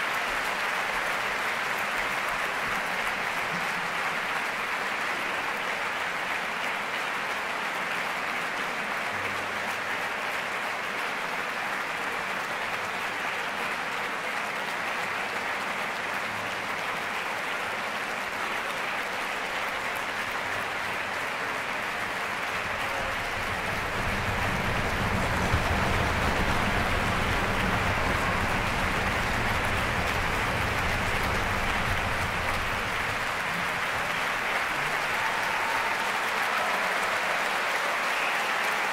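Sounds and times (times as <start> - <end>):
audience applauding: 0.0 - 38.9
deep rumble: 22.6 - 34.0.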